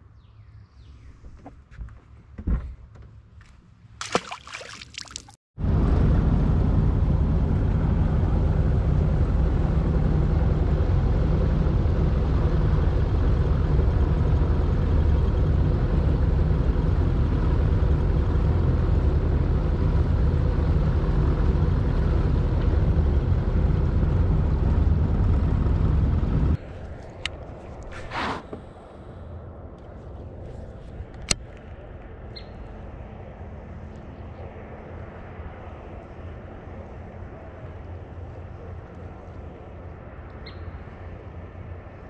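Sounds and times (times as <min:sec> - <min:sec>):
wind and water rushing: 0:04.0 - 0:05.4
outboard motor drone: 0:05.6 - 0:42.0.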